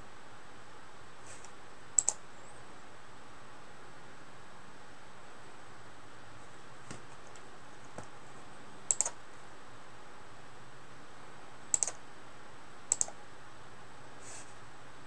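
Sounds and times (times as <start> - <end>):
computer mouse clicks: 1.3 - 2.2, 8.9 - 9.2, 11.7 - 12.0, 12.9 - 13.2.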